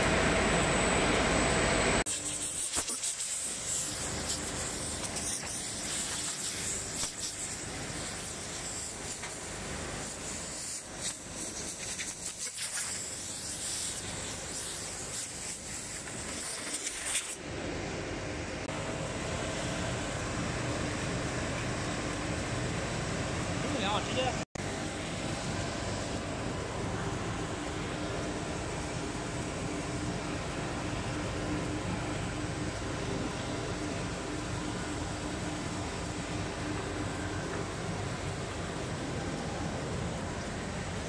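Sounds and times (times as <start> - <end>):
sanding machinery motors and air: 2.0 - 17.4.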